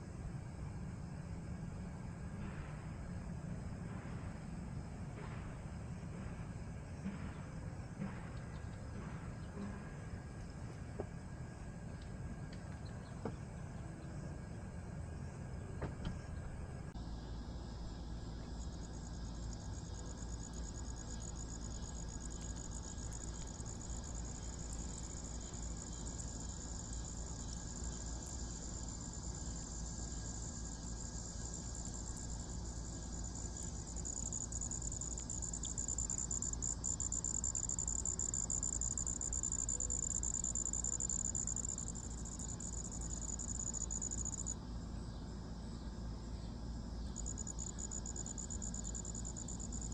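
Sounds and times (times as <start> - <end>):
insects trilling: 16.9 - 49.9.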